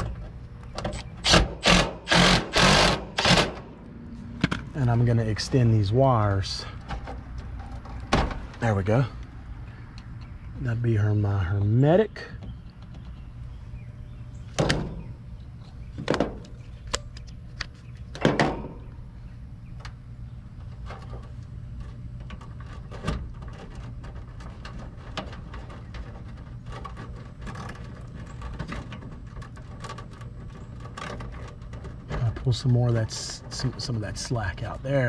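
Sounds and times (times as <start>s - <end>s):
wires rustling: 19.7s - 35.0s.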